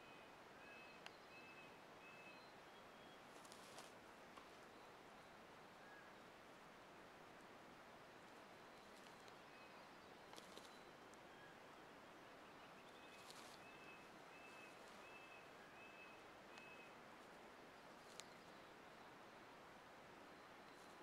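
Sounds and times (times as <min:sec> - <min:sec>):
faint outdoor hiss: 0:00.0 - 0:21.0
faint ticks: 0:17.9 - 0:18.5.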